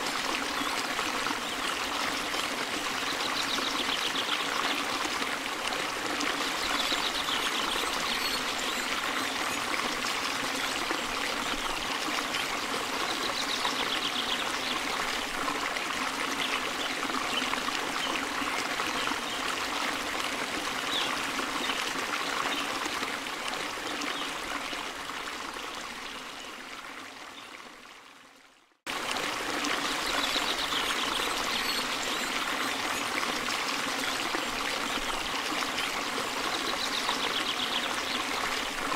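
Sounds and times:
trickling stream water: 0:00.0 - 0:38.9.

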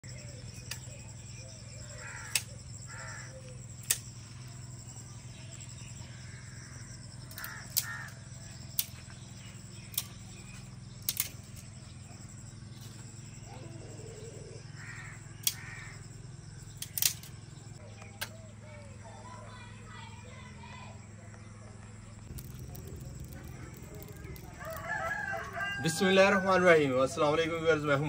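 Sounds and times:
steady low hum: 0:00.0 - 0:28.0
sharp clicks: 0:00.5 - 0:00.9, 0:02.2 - 0:02.6, 0:03.4 - 0:04.2, 0:07.3 - 0:09.0, 0:09.9 - 0:10.3, 0:11.0 - 0:11.6, 0:15.4 - 0:15.8, 0:16.7 - 0:17.4, 0:22.2 - 0:25.6.

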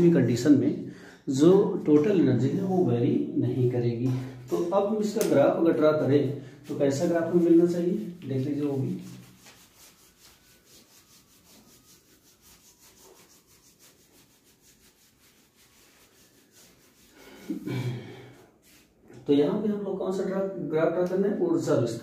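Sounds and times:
whiteboard rubbing strokes: 0:06.6 - 0:17.7, 0:18.4 - 0:19.0.

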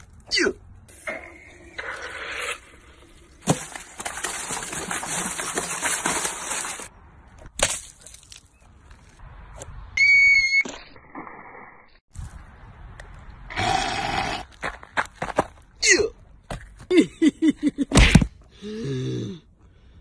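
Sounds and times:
water balloons splashing: 0:03.3 - 0:08.4.

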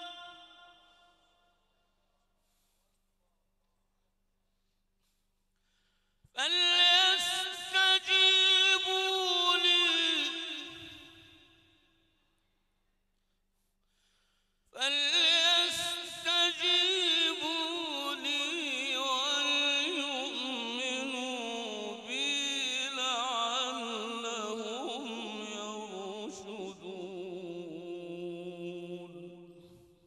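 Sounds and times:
man reciting melodically: 0:00.0 - 0:01.6, 0:06.3 - 0:11.6, 0:14.6 - 0:30.0.

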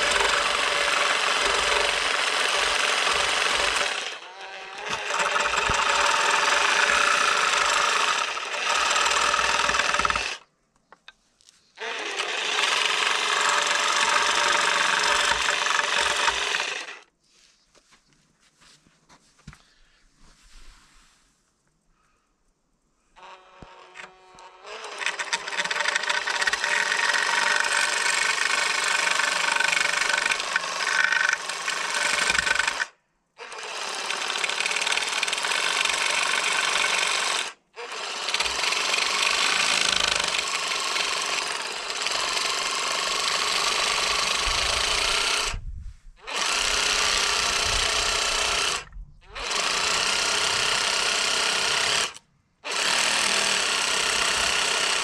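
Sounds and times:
power carver cutting wood: 0:00.0 - 0:10.4, 0:11.8 - 0:17.1, 0:23.2 - 0:45.6, 0:46.2 - 0:55.0.

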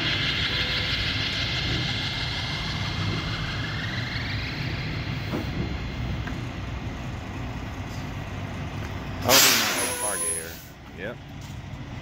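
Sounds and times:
thin rising whine: 0:00.0 - 0:06.7
diesel truck engine idling low: 0:00.0 - 0:12.0.

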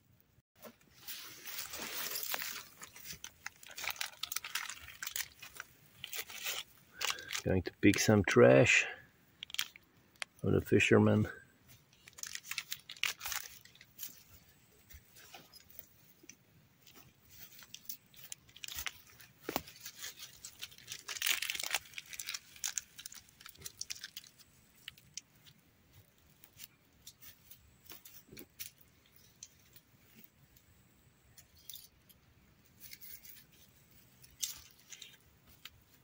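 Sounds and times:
footsteps crunching dry leaves: 0:00.9 - 0:07.4, 0:17.0 - 0:24.4.

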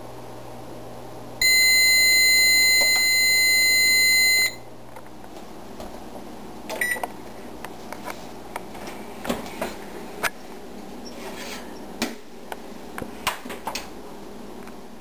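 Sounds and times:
long electronic beep: 0:01.4 - 0:04.6
short beep: 0:01.4 - 0:04.6.

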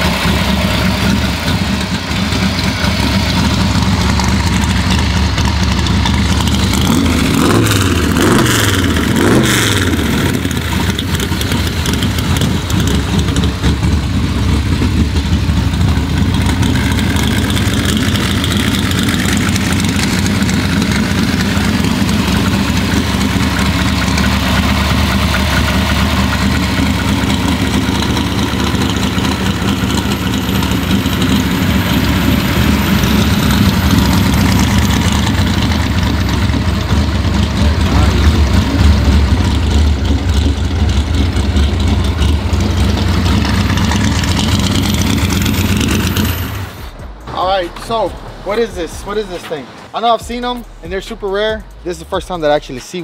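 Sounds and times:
v-eight engine revving and idling: 0:00.0 - 0:49.4.

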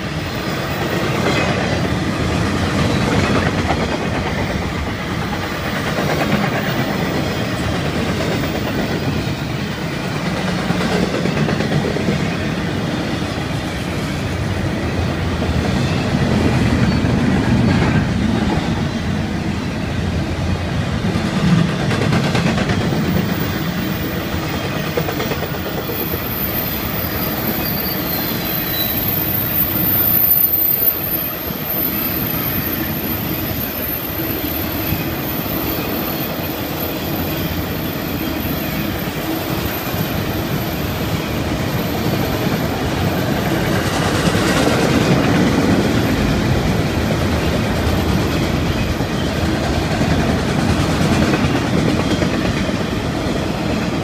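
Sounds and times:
train cars rumbling: 0:00.0 - 0:54.0
train wheels clickety-clack: 0:00.0 - 0:54.0
high wheel squeal: 0:25.7 - 0:41.0.

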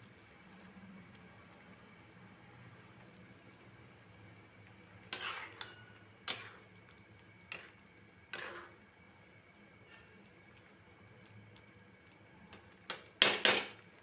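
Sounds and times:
metal spatula scraping a pan: 0:05.0 - 0:06.7, 0:07.4 - 0:08.8, 0:09.8 - 0:10.2.

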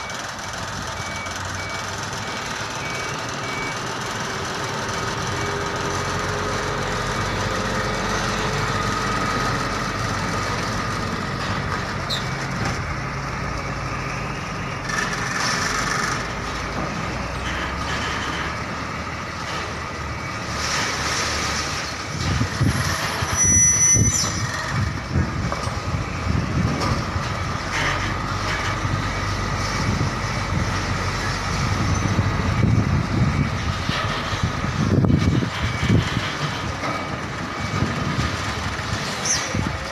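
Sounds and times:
diesel truck engine: 0:00.0 - 0:39.9
reversing beeper: 0:22.7 - 0:24.9.

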